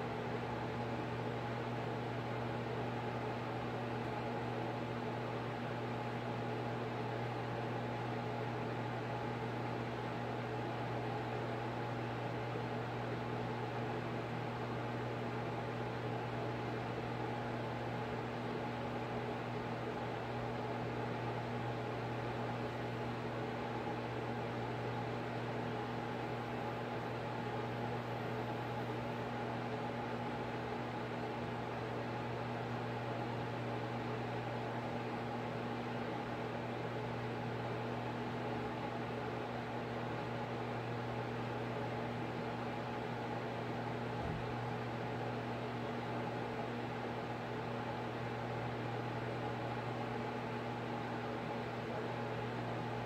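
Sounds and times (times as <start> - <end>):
fan humming with hiss: 0.0 - 6.8.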